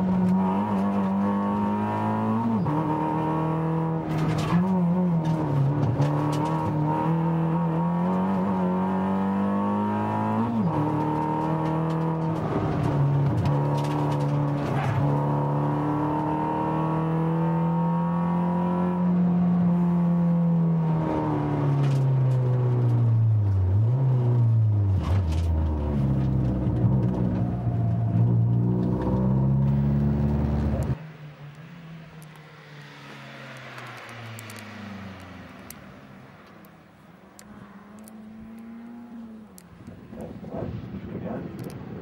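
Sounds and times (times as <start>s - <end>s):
car engine revving: 0.0s - 31.0s, 37.4s - 42.0s
outdoor background: 0.0s - 42.0s.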